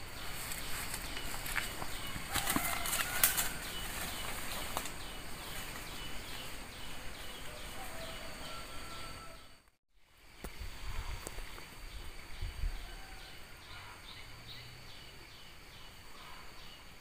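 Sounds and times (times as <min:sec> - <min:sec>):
footsteps in undergrowth: 0:00.0 - 0:08.3.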